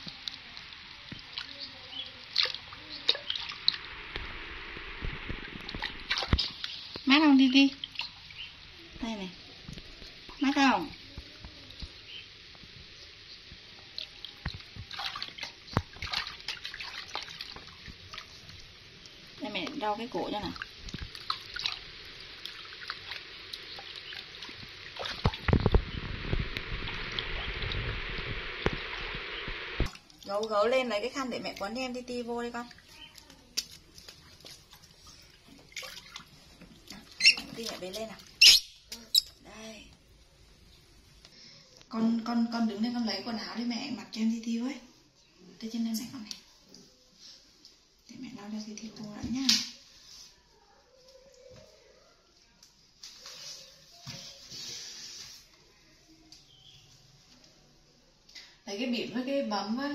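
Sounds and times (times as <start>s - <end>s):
water splashing in plastic basin: 0.0s - 11.1s, 13.9s - 29.2s, 29.8s - 39.0s
water sloshing in plastic basin: 14.0s - 18.6s, 22.4s - 26.0s, 29.8s - 38.4s.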